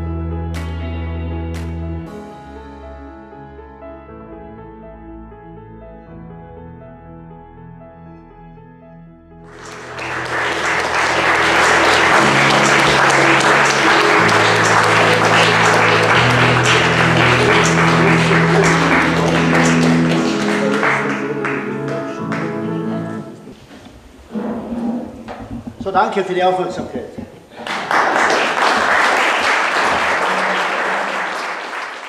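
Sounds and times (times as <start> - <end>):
slow background music: 0.0 - 23.6
audience applauding: 9.5 - 22.9, 27.5 - 32.0.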